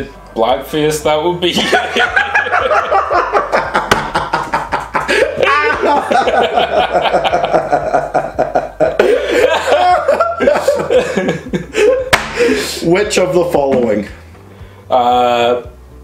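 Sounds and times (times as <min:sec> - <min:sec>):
men laughing hard: 0:01.6 - 0:12.8.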